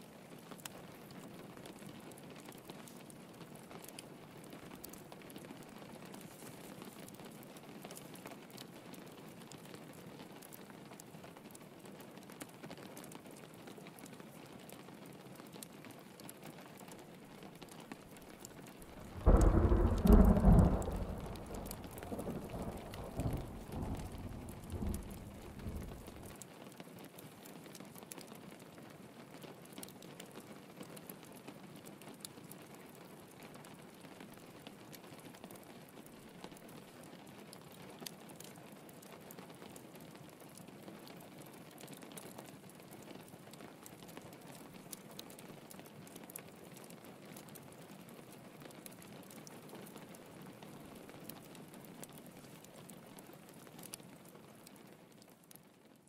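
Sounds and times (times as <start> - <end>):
steady rain: 0.0 - 56.0
thunder clap rumbling: 18.9 - 26.3.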